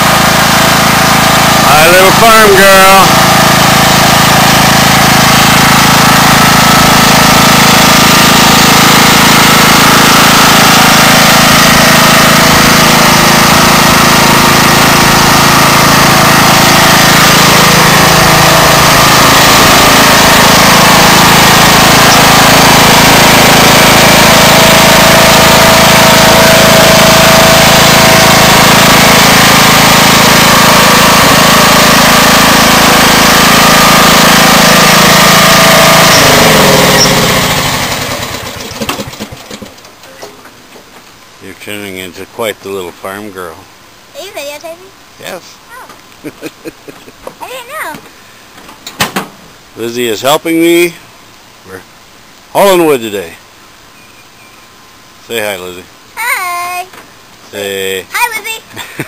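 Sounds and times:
riding lawn mower engine running: 0:00.0 - 0:59.0.

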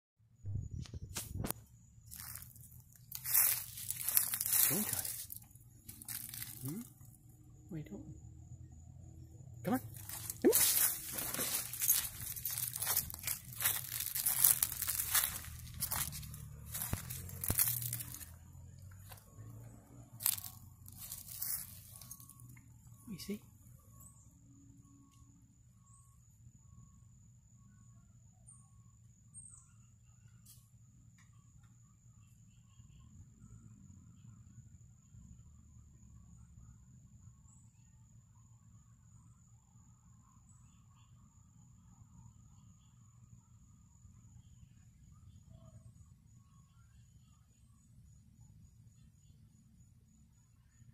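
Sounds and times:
crickets trilling: 0:00.5 - 0:50.9
footsteps crunching dry leaves: 0:02.1 - 0:06.9, 0:09.7 - 0:18.4, 0:19.0 - 0:19.2, 0:20.2 - 0:22.3.

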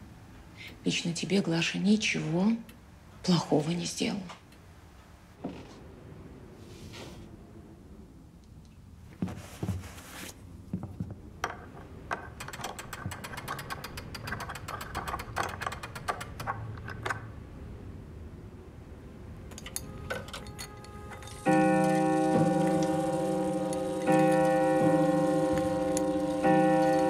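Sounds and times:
clockwork rapid clicking: 0:12.4 - 0:16.6.

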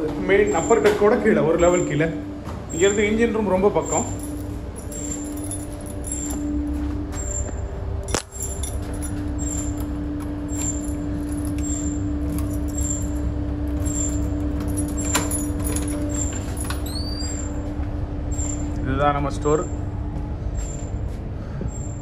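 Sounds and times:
engine room machinery droning: 0:00.0 - 0:22.0
high metallic clinks: 0:03.8 - 0:06.6, 0:07.2 - 0:17.6.

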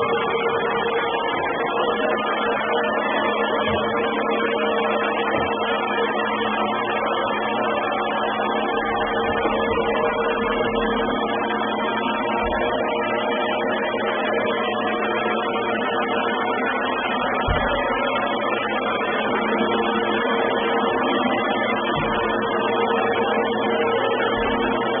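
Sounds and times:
robot vacuum motor drone: 0:00.0 - 0:25.0
low thumps: 0:08.8 - 0:13.0, 0:16.4 - 0:19.3, 0:20.1 - 0:25.0.

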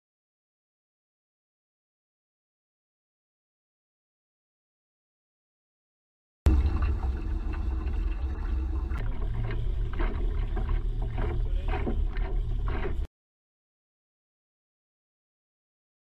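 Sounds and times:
water rushing along hulls: 0:06.5 - 0:13.1.

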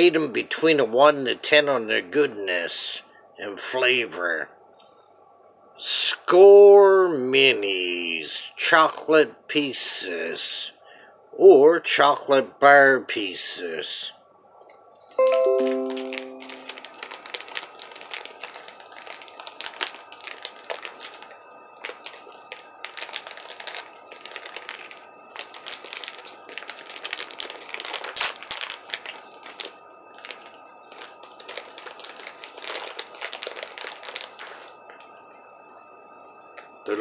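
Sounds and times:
plastic packaging crinkling: 0:15.3 - 0:35.2.

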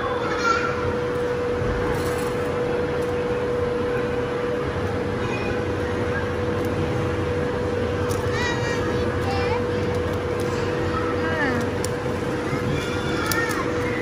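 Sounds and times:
constant hum: 0:00.0 - 0:14.0.

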